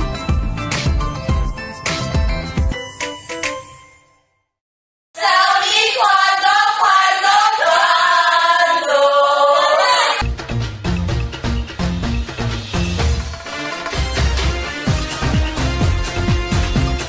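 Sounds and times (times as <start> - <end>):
women singing in unison: 5.2 - 10.2
music track with a beat: 10.2 - 17.0.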